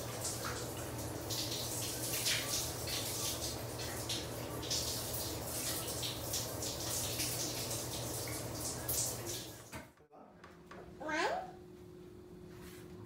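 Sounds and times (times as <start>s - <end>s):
running water splashing: 0.0s - 9.8s.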